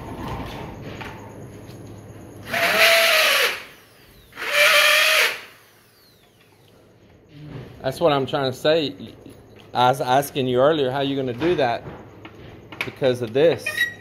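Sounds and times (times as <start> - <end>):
power drill bursts: 2.4 - 6.4.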